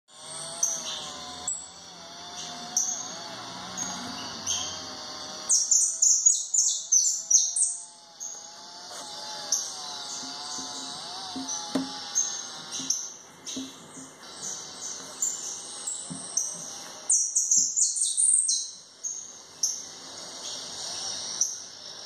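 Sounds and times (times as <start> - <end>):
finch singing chirps and trills: 5.4 - 8.5, 9.5 - 19.8.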